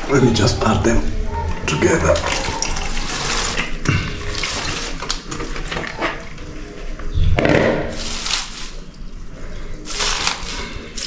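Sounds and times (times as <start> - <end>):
cabbage leaves rustling and splashing: 2.0 - 6.5, 7.9 - 11.0.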